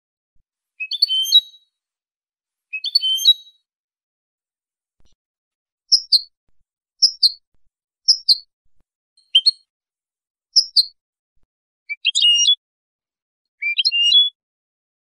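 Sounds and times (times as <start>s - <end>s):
bird twittering song: 0.8s - 1.7s, 2.7s - 3.7s, 5.9s - 6.3s, 7.0s - 7.4s, 8.1s - 8.5s, 9.2s - 9.7s, 10.6s - 11.0s, 11.9s - 12.6s, 13.6s - 14.4s.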